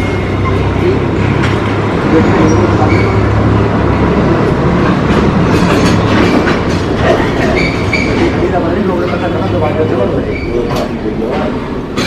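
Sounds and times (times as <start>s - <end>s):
steel wheels rumbling on rail: 0.0s - 12.0s
wheels clicking over rail joints: 4.8s - 9.6s.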